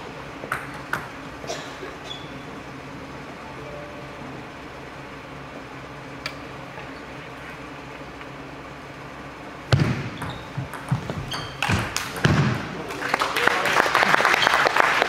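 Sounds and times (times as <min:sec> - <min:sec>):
crowd clapping: 0:11.9 - 0:12.2, 0:12.8 - 0:15.0.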